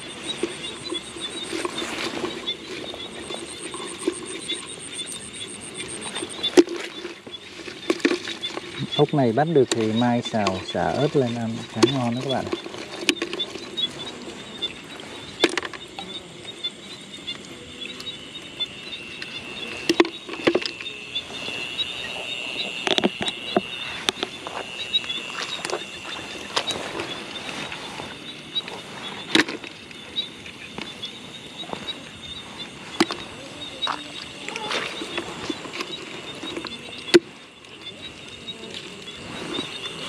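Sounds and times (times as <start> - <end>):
night insects trilling: 0.0 - 40.0
high pulsing chirr: 16.5 - 29.2.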